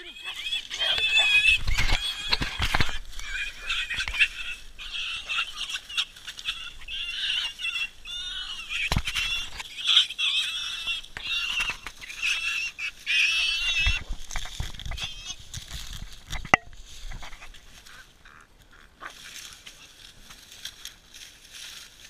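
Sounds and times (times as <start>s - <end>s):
pig squealing: 0.0s - 14.2s, 14.8s - 15.5s.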